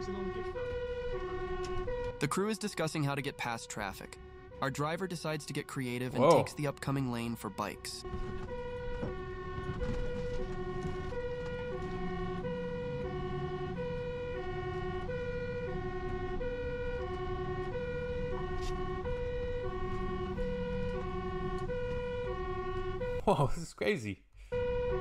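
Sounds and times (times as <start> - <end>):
fire truck two-tone siren: 0.0 - 23.2, 24.4 - 25.0.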